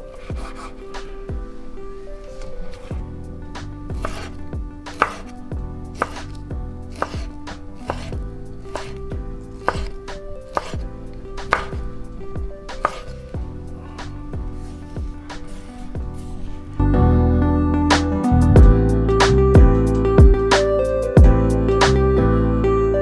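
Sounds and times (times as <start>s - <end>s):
knife chopping on cutting board: 0.2s - 0.7s, 3.9s - 5.3s, 6.0s - 11.9s, 12.7s - 13.2s.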